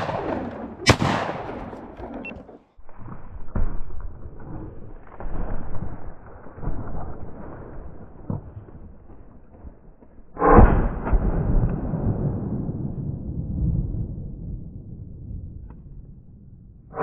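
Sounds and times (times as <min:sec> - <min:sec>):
loud shotgun shot: 0:00.0 - 0:02.5, 0:10.4 - 0:12.5.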